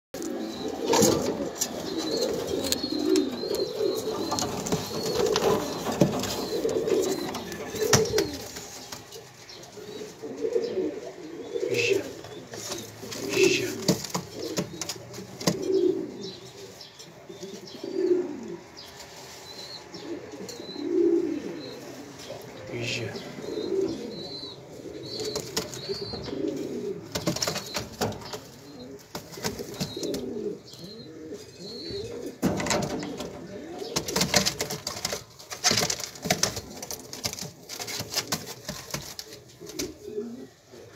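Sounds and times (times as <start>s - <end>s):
pigeons cooing: 0.2s - 40.9s.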